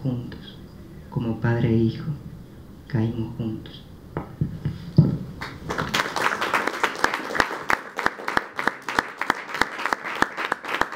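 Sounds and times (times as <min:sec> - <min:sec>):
audience applause: 0:05.4 - 0:10.9.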